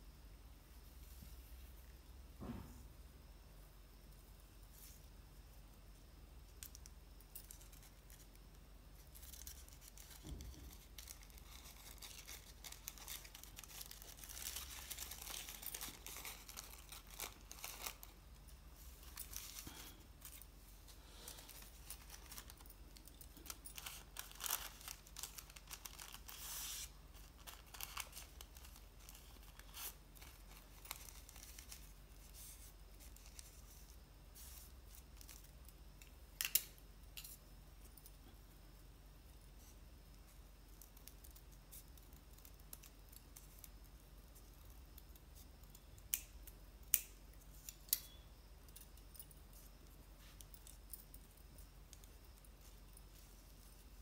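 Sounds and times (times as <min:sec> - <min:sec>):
paper rustling and crinkling: 0:09.0 - 0:35.5.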